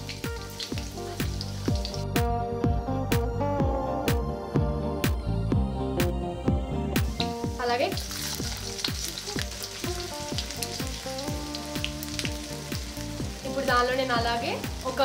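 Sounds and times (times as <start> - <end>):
garlic sizzling in hot oil: 0.0 - 2.2, 7.1 - 15.0
background music with beat: 0.0 - 15.0.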